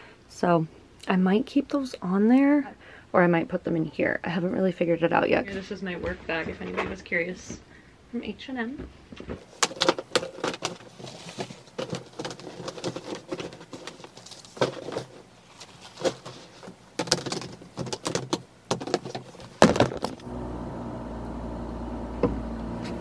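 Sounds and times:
bags packed into plastic bin: 0:09.3 - 0:20.2
car cabin hum while driving: 0:20.2 - 0:23.0.

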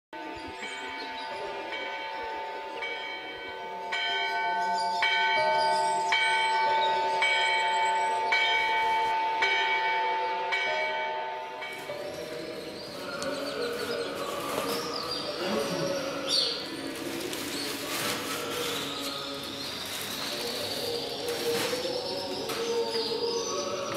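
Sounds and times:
church bells ringing: 0:00.2 - 0:16.7
birds chirping: 0:11.7 - 0:23.9.

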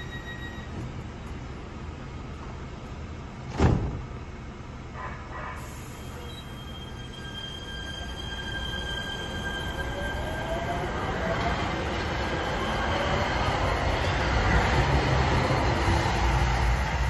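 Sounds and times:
light-rail train pulling away: 0:00.0 - 0:02.6, 0:05.6 - 0:17.0
sharp thump: 0:03.5 - 0:04.1
rising whine of train motor: 0:05.8 - 0:17.0.

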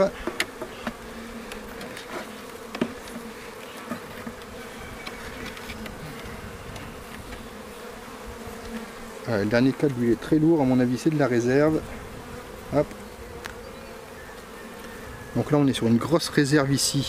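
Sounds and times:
honeybees buzzing: 0:00.0 - 0:17.0
wooden hive frames clicking: 0:00.2 - 0:07.6, 0:09.6 - 0:11.3.

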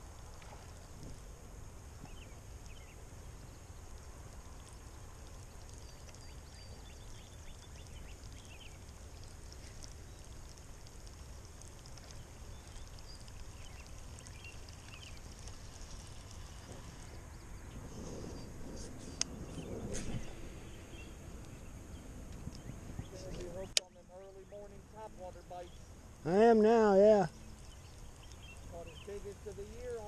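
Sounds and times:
high insect drone: 0:00.0 - 0:30.0
bird chirps: 0:02.0 - 0:03.8, 0:05.4 - 0:10.9, 0:12.0 - 0:26.0, 0:27.2 - 0:30.0.

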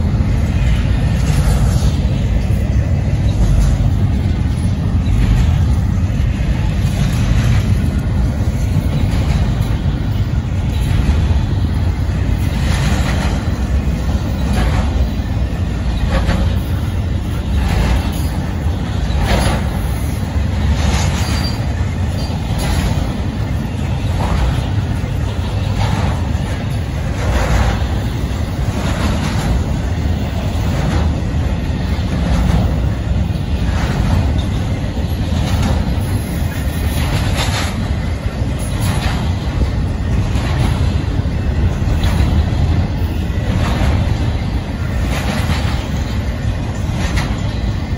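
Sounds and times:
freight train rumbling past: 0:00.0 - 0:47.9
train wheel clack: 0:00.0 - 0:47.9.

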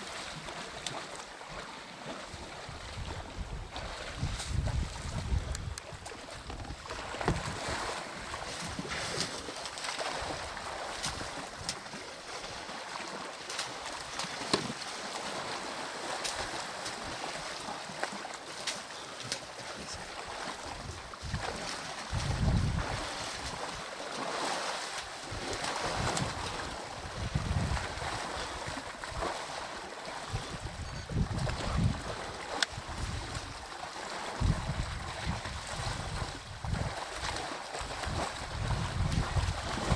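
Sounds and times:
water sloshing and splashing: 0:00.0 - 0:39.9.

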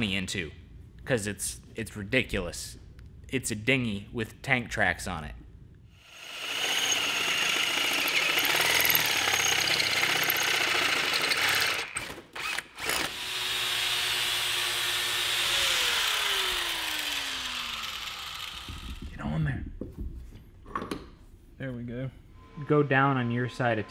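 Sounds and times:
electric drill boring metal: 0:06.0 - 0:19.0.

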